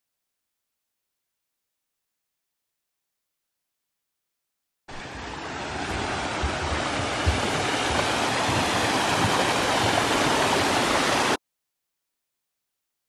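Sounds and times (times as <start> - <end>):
waterfall splashing into pool: 4.9 - 11.4.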